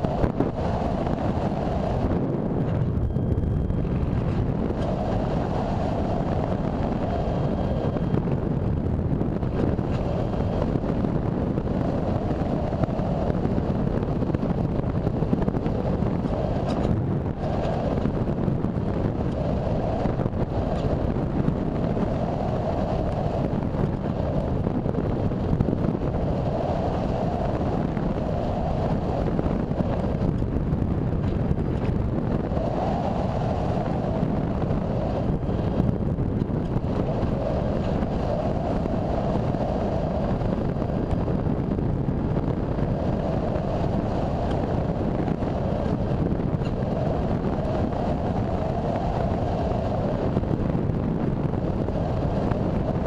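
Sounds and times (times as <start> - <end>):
faint hum: 0.0 - 53.0
wind roaring over microphone: 0.0 - 53.0.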